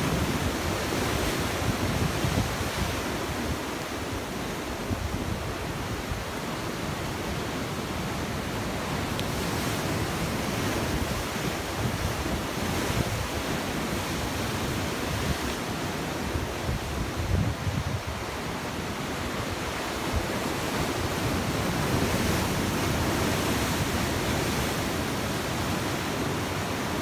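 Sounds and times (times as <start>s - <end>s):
sea surf breaking over rocks: 0.0s - 27.0s.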